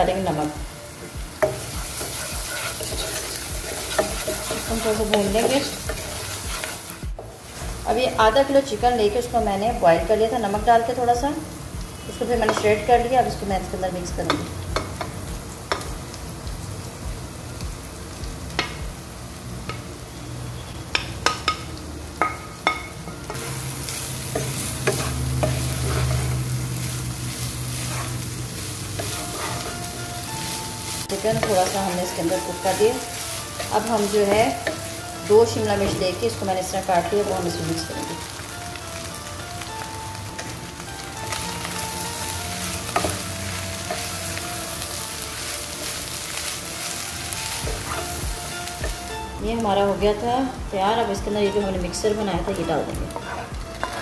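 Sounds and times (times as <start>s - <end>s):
frying sizzle: 0.0s - 54.0s
wooden spatula scraping a pot: 1.6s - 7.0s, 23.3s - 28.4s, 29.0s - 29.9s, 53.1s - 54.0s.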